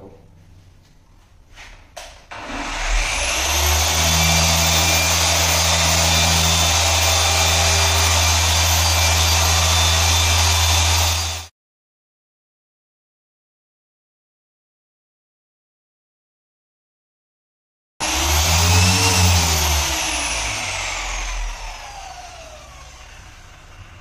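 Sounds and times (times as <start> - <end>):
polisher motor whine: 2.3 - 11.5, 18.0 - 24.0.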